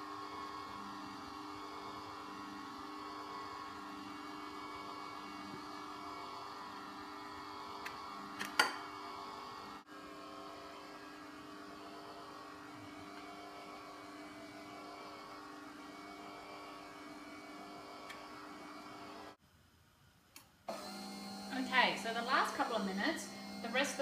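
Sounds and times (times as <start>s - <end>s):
electric motor humming: 20.7s - 24.0s.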